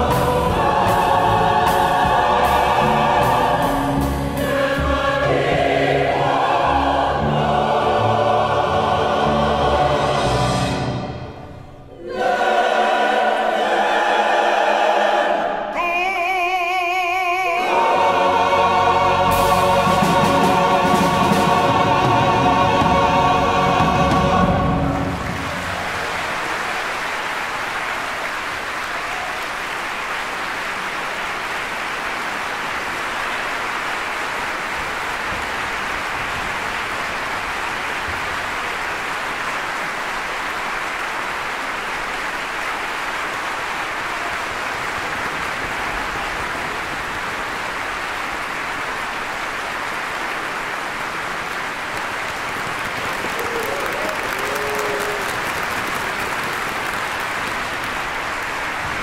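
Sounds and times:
audience applauding: 24.3s - 59.0s.

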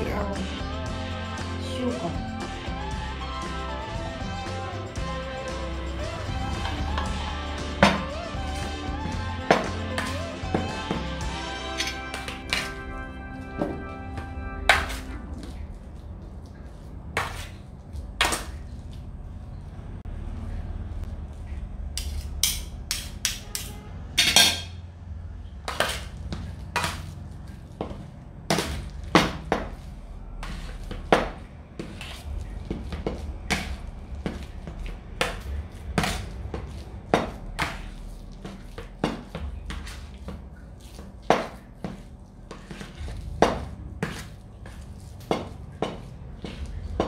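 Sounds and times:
cutlery scraping metal tray: 11.7s - 12.8s, 22.0s - 24.8s, 25.7s - 26.2s.

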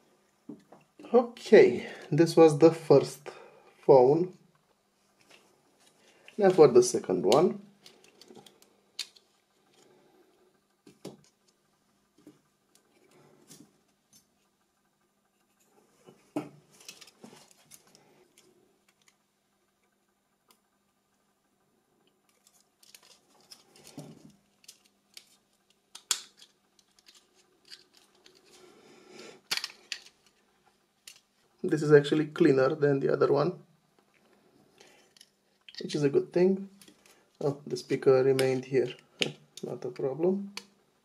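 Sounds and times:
small clicks and taps of phone parts: 22.3s - 28.4s.

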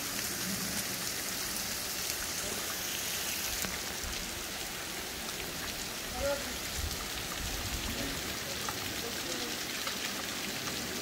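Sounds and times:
waterfall hissing: 0.0s - 11.0s.

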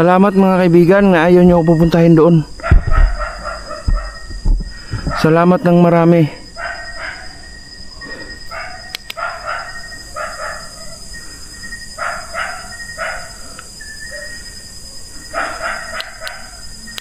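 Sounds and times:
high-pitched whine: 0.0s - 17.0s
dog barking: 2.6s - 4.3s, 6.6s - 7.3s, 8.5s - 11.0s, 12.0s - 13.4s, 14.1s - 14.4s, 15.3s - 16.6s.

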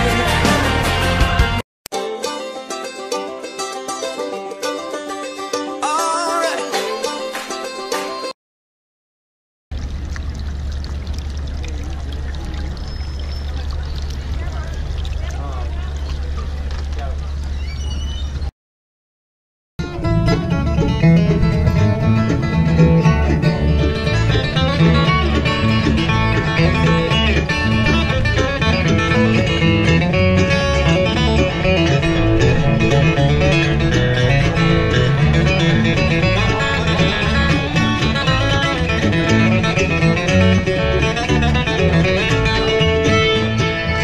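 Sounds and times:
banjo picking: 0.0s - 8.3s, 19.8s - 44.0s
bluegrass band playing: 0.0s - 8.3s, 19.8s - 44.0s
acoustic guitar: 0.0s - 8.4s, 19.8s - 44.0s.

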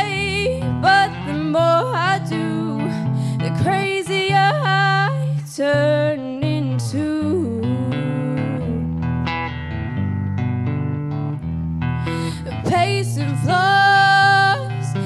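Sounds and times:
girl singing pop ballad: 0.0s - 9.0s, 12.0s - 15.0s
instrumental backing music: 0.0s - 15.0s.

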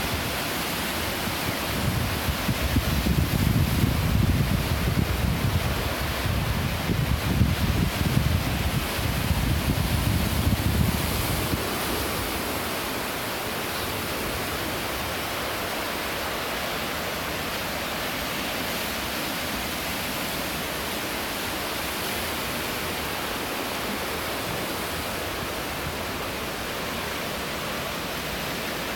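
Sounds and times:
surf washing on rocky shore: 0.0s - 28.9s
wind buffeting microphone: 1.6s - 12.5s.

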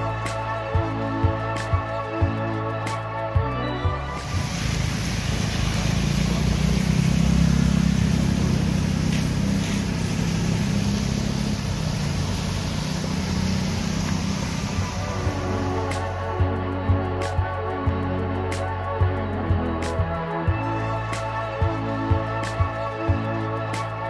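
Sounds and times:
tyre hiss on wet road: 4.1s - 16.4s
traffic engine hum: 4.2s - 16.3s.

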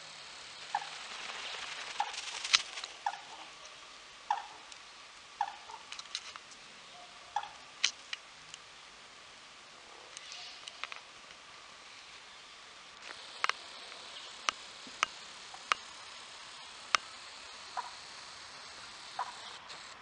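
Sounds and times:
sharp clicks: 0.7s - 3.2s, 13.0s - 20.0s
bird chirping call: 12.2s - 15.9s, 16.8s - 20.0s.

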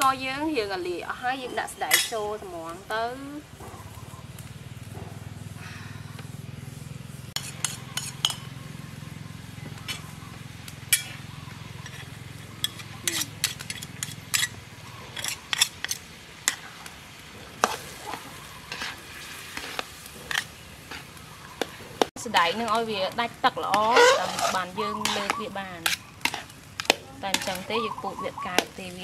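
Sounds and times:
faint sizzle: 0.0s - 29.0s
metal spatula scraping wok: 1.5s - 2.4s, 7.3s - 9.1s, 9.8s - 10.2s, 10.9s - 29.0s.

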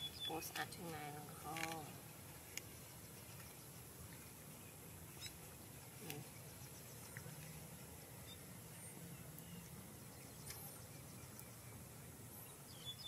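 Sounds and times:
faint chirps and clicks: 5.1s - 7.6s, 9.2s - 11.6s.

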